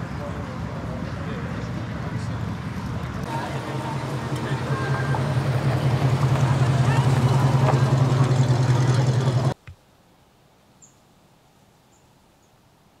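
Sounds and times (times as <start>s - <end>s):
engine rumble with pulsing beat: 0.0s - 9.6s
outdoor crowd noise: 0.0s - 9.8s.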